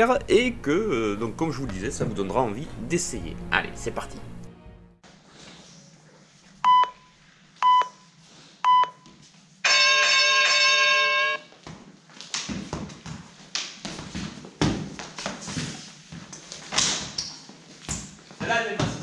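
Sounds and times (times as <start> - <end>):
long harsh beep: 9.6 - 11.4.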